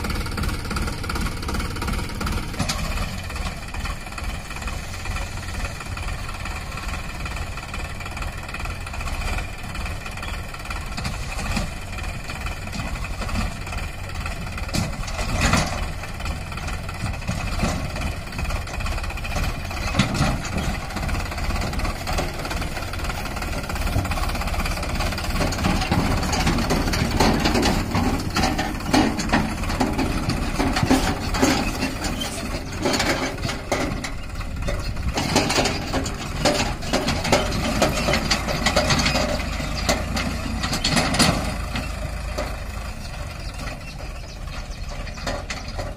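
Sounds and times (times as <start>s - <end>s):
tractor diesel engine running: 0.0s - 45.9s.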